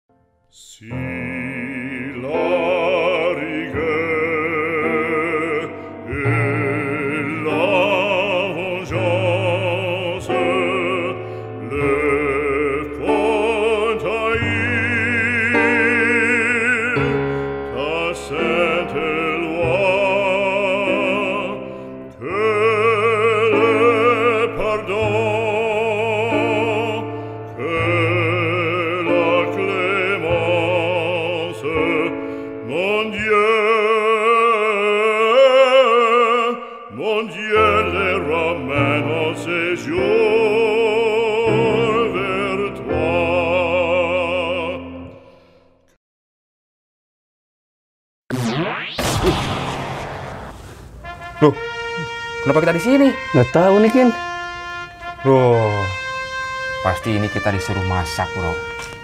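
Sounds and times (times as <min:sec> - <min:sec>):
operatic singing with vibrato: 0:00.6 - 0:45.1, 0:49.7 - 0:59.0
instrumental accompaniment: 0:48.4 - 0:59.0.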